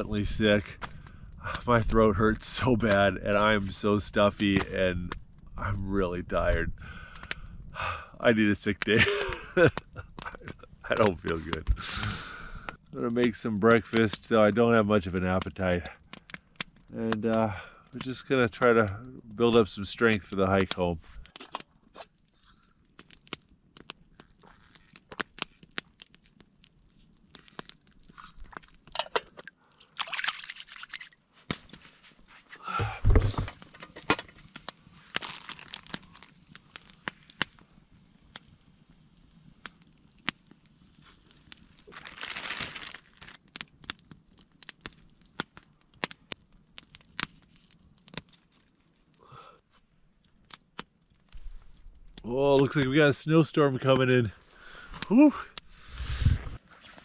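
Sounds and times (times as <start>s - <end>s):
campfire crackling and popping: 0.0s - 57.0s
rustling and handling noise: 24.0s - 37.5s, 40.9s - 43.8s, 54.3s - 57.0s.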